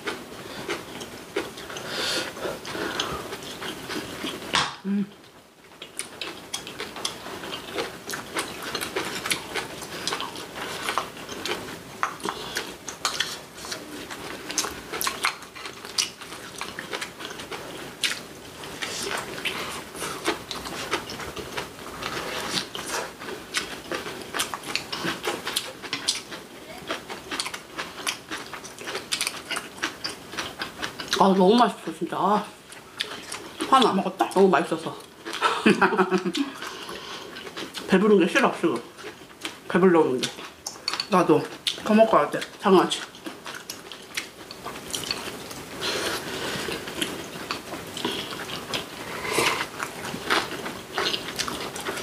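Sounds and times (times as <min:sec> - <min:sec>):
crisp chewing crunches: 0:05.7 - 0:31.3, 0:38.7 - 0:52.0.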